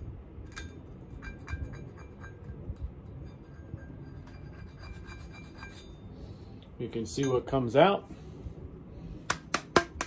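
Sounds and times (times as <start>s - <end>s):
screwdriver scraping metal: 1.1s - 6.0s.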